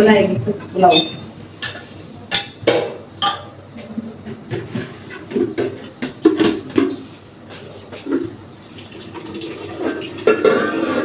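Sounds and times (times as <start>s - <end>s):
pots and utensils clinking: 0.8s - 3.6s, 4.3s - 7.0s, 9.0s - 11.0s.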